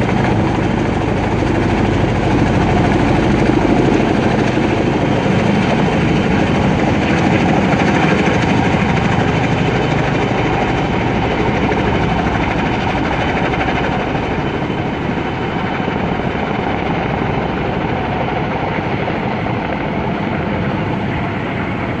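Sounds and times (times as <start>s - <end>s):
helicopter rotor blades beating: 0.0s - 22.0s.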